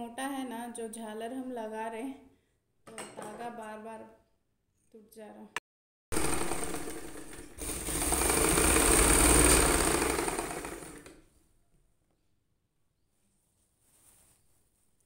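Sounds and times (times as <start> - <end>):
sewing machine running: 6.1 - 11.2.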